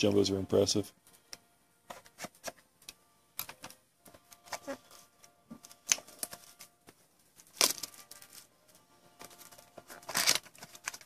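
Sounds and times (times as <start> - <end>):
card pack being cut open: 7.4 - 8.4, 9.2 - 11.0.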